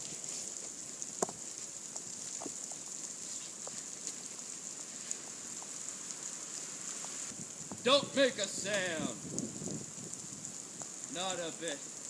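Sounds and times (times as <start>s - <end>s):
steady high hiss: 0.0s - 12.0s
faint ticks and taps: 0.6s - 4.3s, 5.1s - 5.8s.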